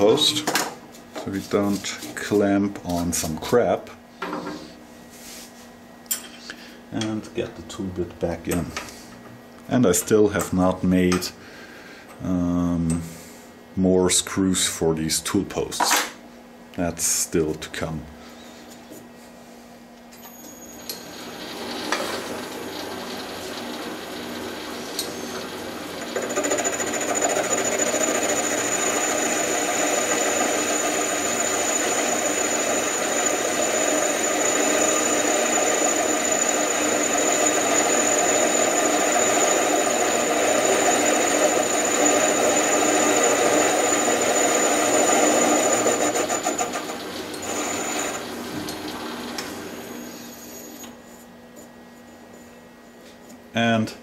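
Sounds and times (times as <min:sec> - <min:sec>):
lathe spindle running up: 0:20.8 - 0:50.9
lathe cutting noise with whine: 0:20.8 - 0:51.0.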